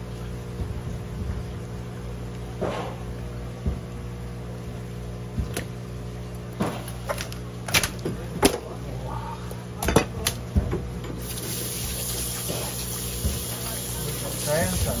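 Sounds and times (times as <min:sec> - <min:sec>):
steady low hum: 0:00.0 - 0:15.0
tap water running: 0:11.1 - 0:15.0.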